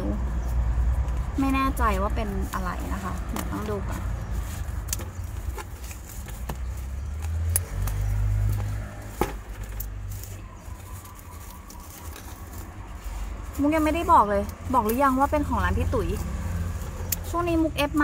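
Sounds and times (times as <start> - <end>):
packaging being handled: 2.2 - 14.0.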